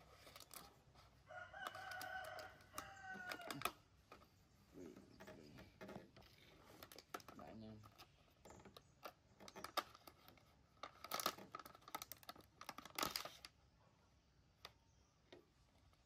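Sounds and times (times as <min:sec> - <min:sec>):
plastic box crackling: 0:00.0 - 0:00.8, 0:01.5 - 0:04.2, 0:05.2 - 0:13.6.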